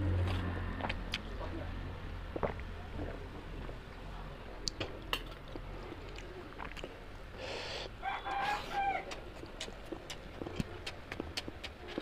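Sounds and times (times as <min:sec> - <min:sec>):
eating and chewing clicks: 0:04.6 - 0:07.0, 0:09.0 - 0:12.0
rooster crowing: 0:08.0 - 0:09.2.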